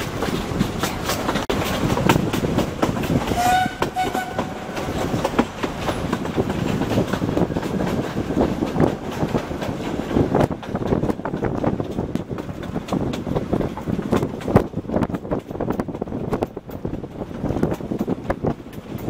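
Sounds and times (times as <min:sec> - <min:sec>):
train coaches rattling over rails: 0:00.0 - 0:19.0
steam whistle: 0:03.4 - 0:04.6.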